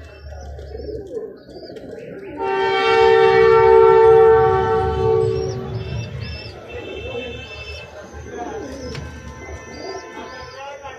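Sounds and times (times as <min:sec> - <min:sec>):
two-note vehicle horn blast: 0:02.4 - 0:06.2.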